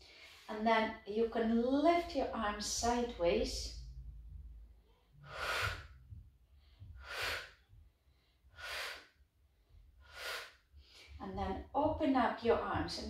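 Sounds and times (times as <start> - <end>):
woman breathing while exercising: 5.1 - 11.2.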